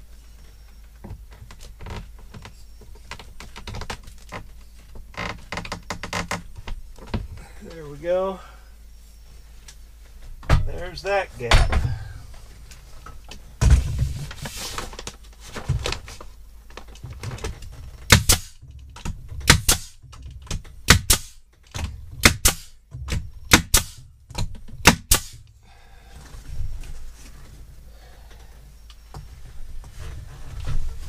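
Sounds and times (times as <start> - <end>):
nail gun snaps: 18.1 - 20.0, 20.9 - 25.4.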